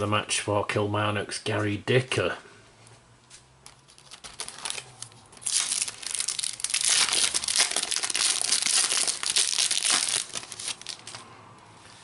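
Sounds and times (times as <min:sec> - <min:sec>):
foil wrapper tearing and crinkling: 0:03.7 - 0:11.2.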